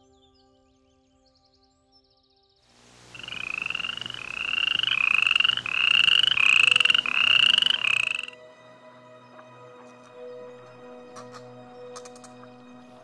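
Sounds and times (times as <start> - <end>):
faint background music: 0.0 - 13.0
animal pulsed trills: 3.1 - 8.4.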